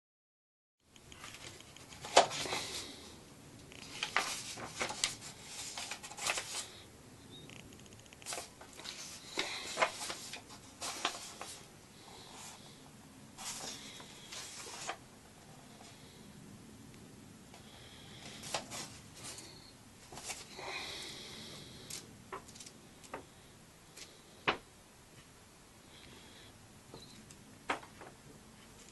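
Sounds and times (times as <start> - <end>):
book pages flipping: 1.0 - 3.0, 3.6 - 6.8, 7.5 - 11.7, 13.4 - 15.0, 18.2 - 20.6.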